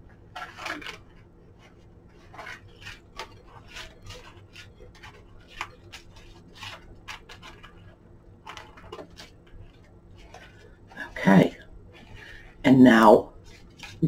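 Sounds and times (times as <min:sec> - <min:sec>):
lamp shade rustling and scraping: 0:00.0 - 0:12.4.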